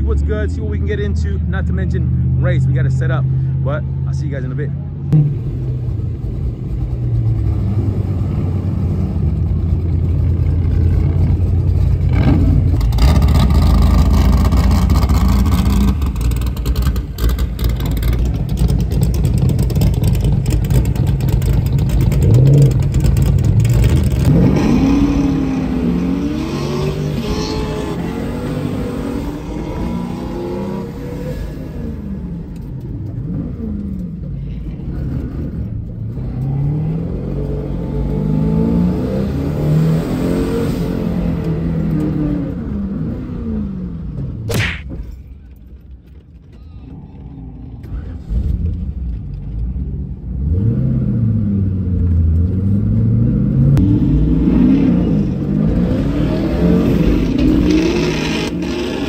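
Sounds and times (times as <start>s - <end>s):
car engine accelerating and slowing: 0.0s - 44.5s, 45.4s - 59.0s
sharp crack: 44.5s - 45.2s.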